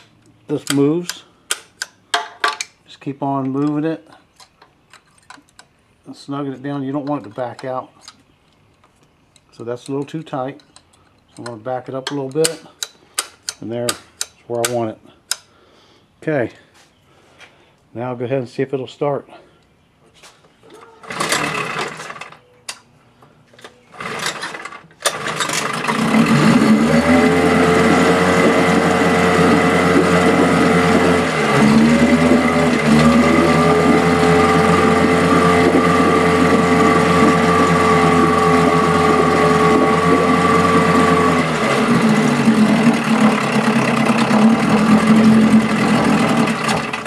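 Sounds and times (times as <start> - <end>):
outboard engine cranking: 20.8 - 22.5, 23.7 - 47.0
outboard engine running: 25.1 - 47.0.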